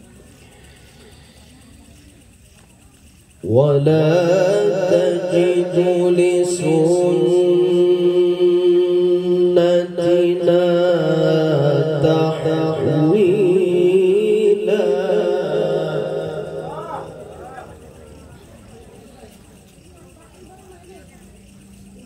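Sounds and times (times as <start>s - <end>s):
man chanting through loudspeaker: 3.4s - 18.0s.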